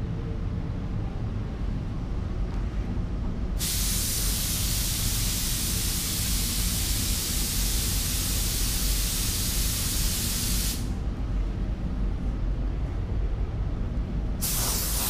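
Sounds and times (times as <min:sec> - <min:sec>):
ventilation rumble: 0:00.0 - 0:15.0
paint spray gun hissing: 0:03.6 - 0:10.9, 0:14.4 - 0:15.0.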